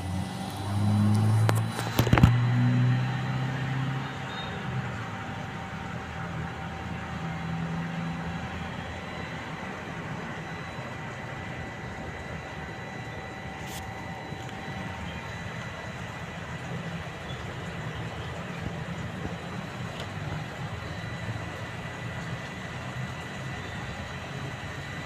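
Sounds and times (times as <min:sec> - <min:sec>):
faint high whine: 0:00.0 - 0:25.0
urban background rumble: 0:00.0 - 0:25.0.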